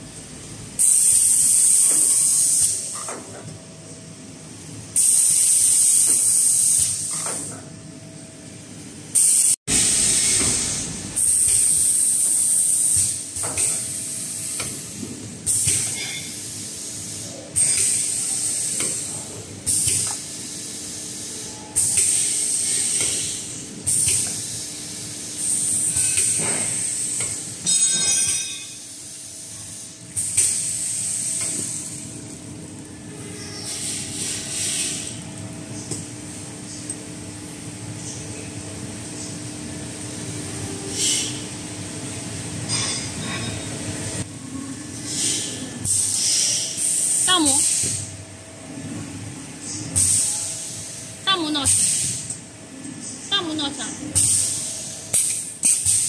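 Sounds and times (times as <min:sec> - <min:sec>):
faint steady machine hum: 0:00.0 - 0:56.0.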